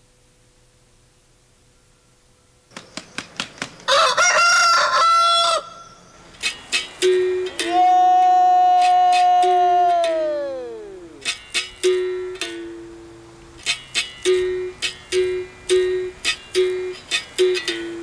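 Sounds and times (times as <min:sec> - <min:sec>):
caxixi rattle: 0:06.3 - 0:07.7
berimbau twangy notes: 0:06.4 - 0:08.1, 0:08.7 - 0:18.0
loud wavering vocal call: 0:07.3 - 0:11.3.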